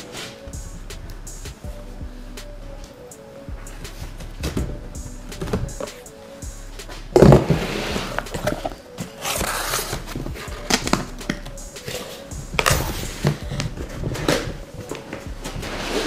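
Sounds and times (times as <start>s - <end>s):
cardboard box scraping: 7.2s - 14.6s, 15.4s - 16.0s.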